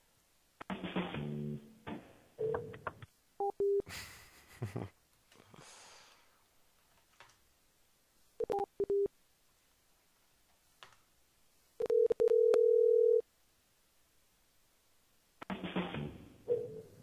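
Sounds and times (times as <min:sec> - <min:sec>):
steady telephone tone: 0:11.8 - 0:13.2.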